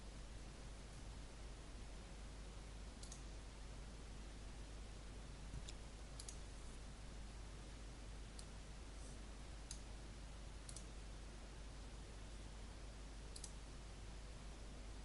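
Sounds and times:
low hiss and hum: 0.0s - 15.0s
computer mouse clicks: 3.0s - 3.3s, 5.6s - 6.5s, 10.6s - 10.9s, 13.3s - 13.6s.

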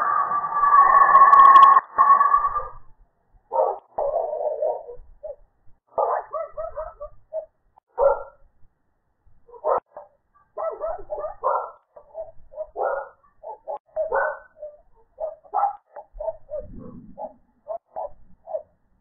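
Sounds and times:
dog barking: 3.5s - 8.4s, 9.5s - 18.8s.

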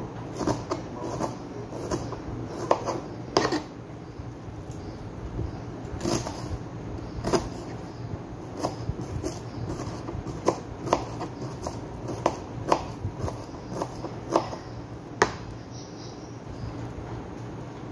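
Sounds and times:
knife chopping on cutting board: 0.3s - 3.7s, 6.0s - 6.5s, 7.2s - 7.7s, 8.6s - 15.4s.

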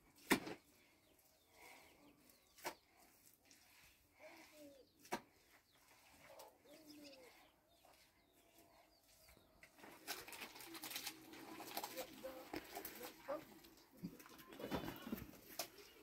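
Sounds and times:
rustling scraping noise: 5.0s - 16.0s
thin high bird chirps: 5.7s - 11.0s.

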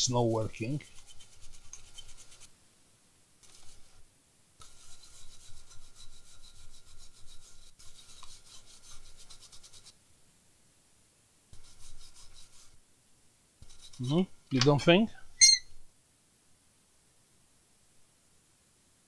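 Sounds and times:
toothbrush scrubbing circuit board: 0.8s - 2.5s, 4.6s - 9.9s.

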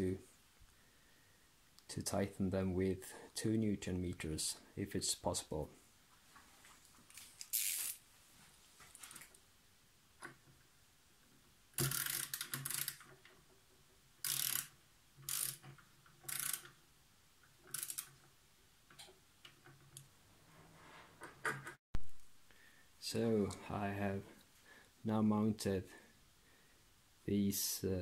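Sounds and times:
ratchet wrench clicking: 7.5s - 8.0s, 11.8s - 13.0s, 14.2s - 14.7s, 15.3s - 15.6s, 16.3s - 16.7s, 17.7s - 18.1s.

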